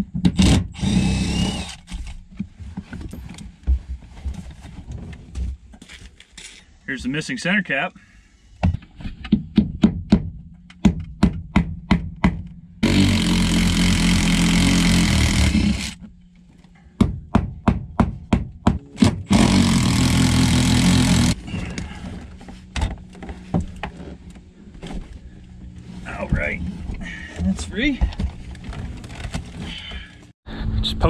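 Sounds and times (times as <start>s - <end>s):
cordless impact wrench: 0.3s - 2.1s, 12.8s - 16.0s, 19.0s - 21.4s.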